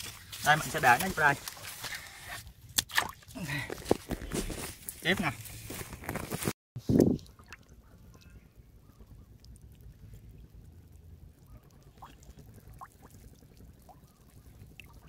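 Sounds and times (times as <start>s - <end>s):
faint trickling water: 6.8s - 15.0s
low steady rumble: 7.0s - 15.0s.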